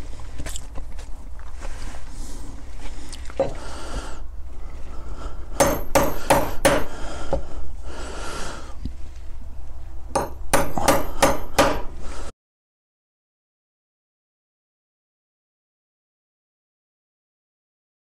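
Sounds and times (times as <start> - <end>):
hammer striking metal punch: 5.6 - 6.9, 10.1 - 12.0.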